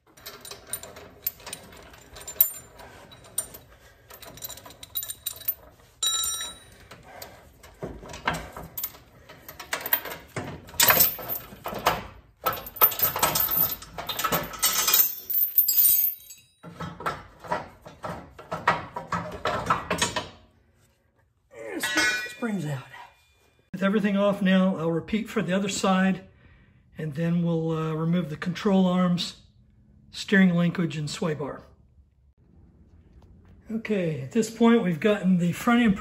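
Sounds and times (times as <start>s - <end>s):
steel chain clinking and rattling: 0.0s - 18.5s.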